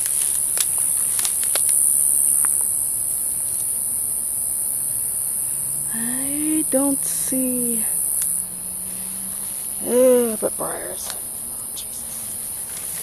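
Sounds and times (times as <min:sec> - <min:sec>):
dry weed stalks crackling: 0:00.0 - 0:03.8
night insects chorus: 0:00.0 - 0:13.0.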